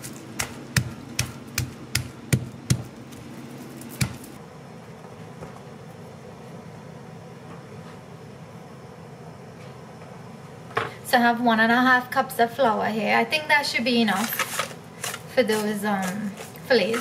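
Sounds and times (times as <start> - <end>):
knife chopping on wooden board: 0.4 - 2.9, 3.9 - 4.3.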